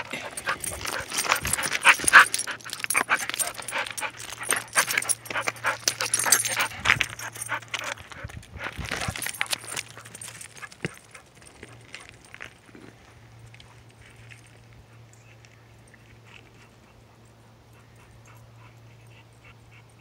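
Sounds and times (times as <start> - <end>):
dog panting and whimpering: 0.0 - 11.4, 16.2 - 20.0
footsteps crunching on loose stones: 0.0 - 14.5.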